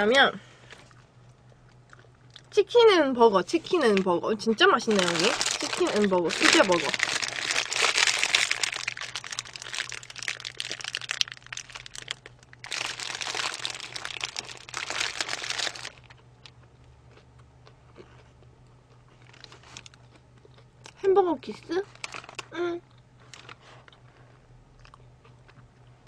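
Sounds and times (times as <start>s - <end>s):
paper wrapper crinkling: 4.8s - 16.2s, 21.9s - 22.5s.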